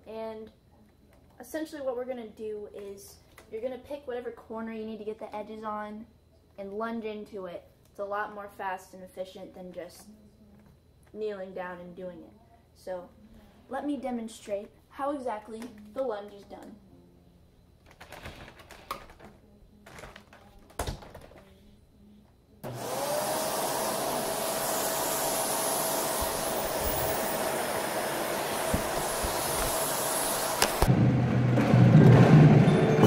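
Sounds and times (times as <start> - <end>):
vacuum cleaner motor whine: 22.4 - 33.0.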